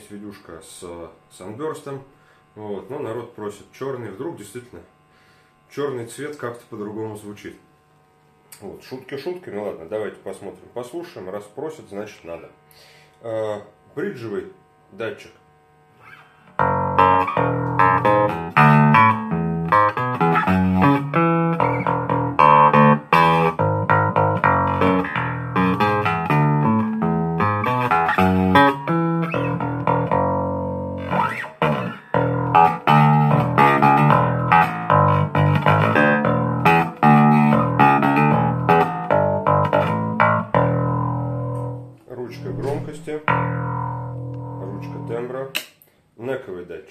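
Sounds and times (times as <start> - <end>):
electric bass plucked notes: 16.5 - 45.4.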